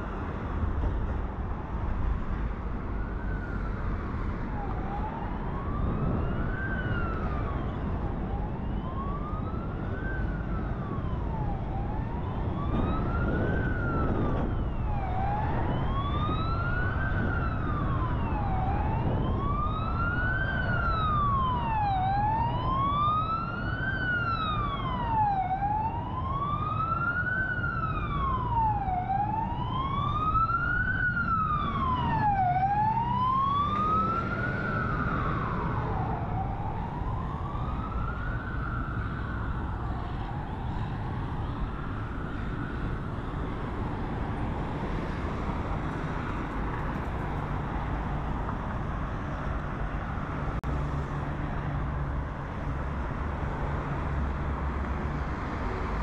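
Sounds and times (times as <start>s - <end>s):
city traffic rumble: 0.0s - 56.0s
emergency siren wailing: 1.7s - 56.0s
second wailing siren: 3.0s - 50.6s.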